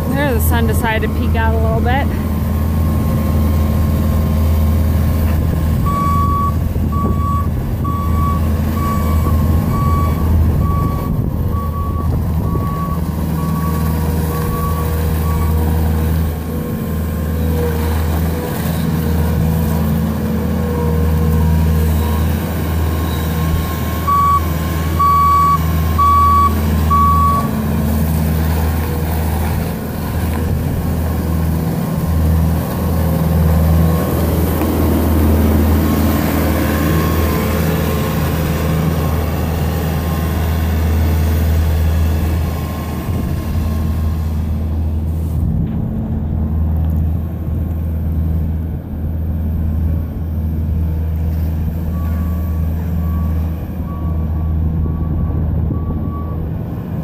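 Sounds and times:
diesel engine running: 0.0s - 57.0s
backup alarm beeping: 24.1s - 27.5s.

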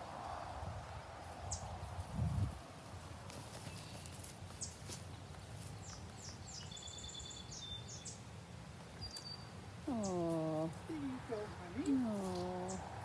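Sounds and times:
faint high bird chirps: 5.8s - 8.2s, 9.0s - 10.3s.

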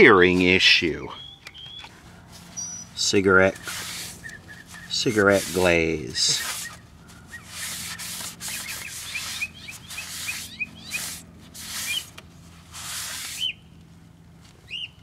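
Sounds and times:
rag rubbing over paper: 2.3s - 13.5s.

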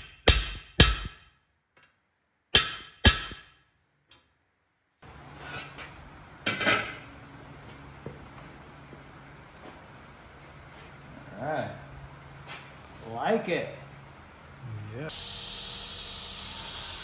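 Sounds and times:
hammer striking steel rivet: 0.0s - 1.4s, 2.5s - 3.6s.

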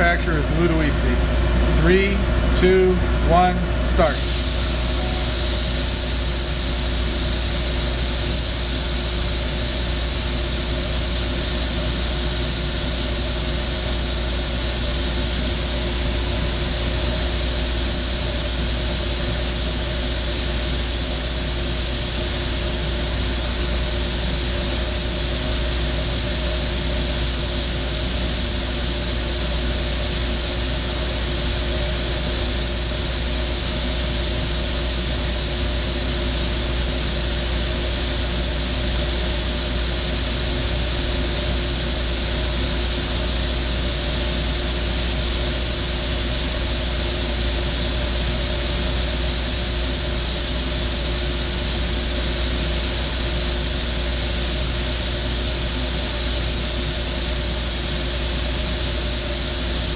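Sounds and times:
sandblaster hissing: 4.0s - 59.9s.

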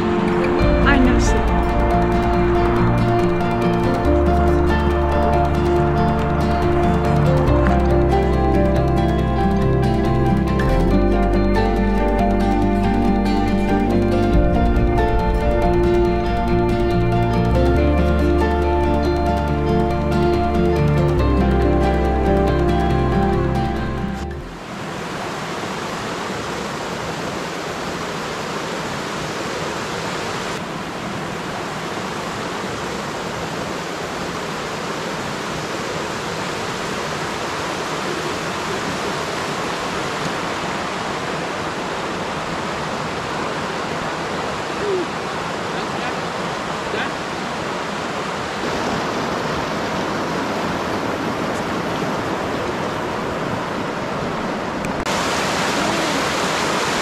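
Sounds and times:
river rushing over rocks: 24.5s - 57.0s.

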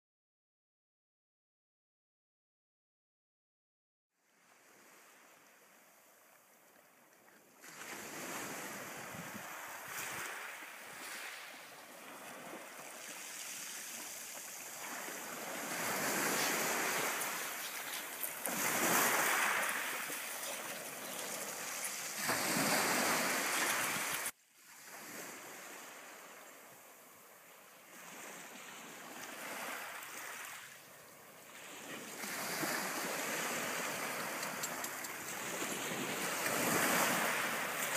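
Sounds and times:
waves washing over pebble beach: 9.9s - 25.7s.

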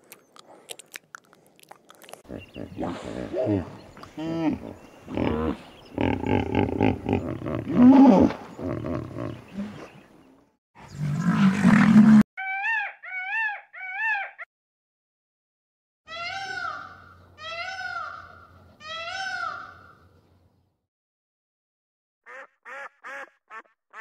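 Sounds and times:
animal grunting and growling: 2.0s - 9.8s.

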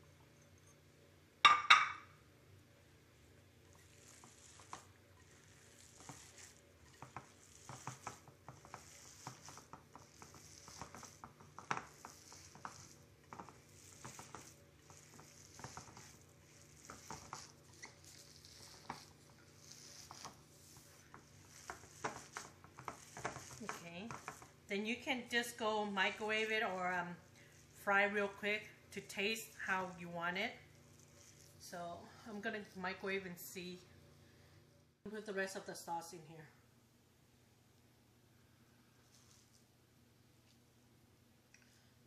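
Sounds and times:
dishes clinking: 1.5s - 2.1s.

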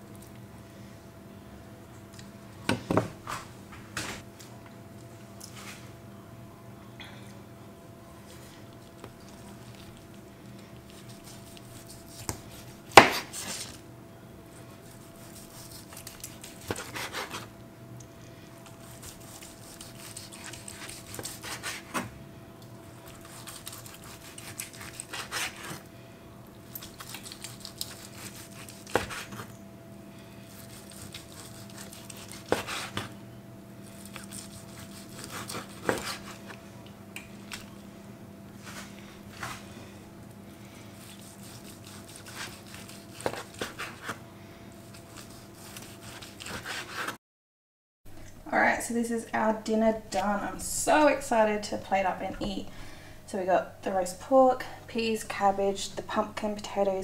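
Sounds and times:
faint steady hum: 0.0s - 47.1s, 48.1s - 57.0s
knife slicing meat: 10.9s - 13.8s, 14.8s - 17.5s, 18.6s - 22.0s, 23.0s - 25.8s, 26.7s - 29.5s, 30.5s - 33.1s, 33.8s - 36.6s, 41.0s - 44.2s, 44.8s - 47.2s.

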